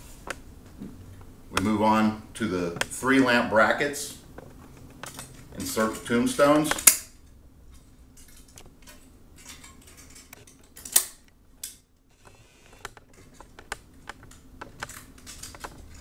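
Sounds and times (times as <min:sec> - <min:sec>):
plastic clicks and rattles: 0:12.8 - 0:16.0.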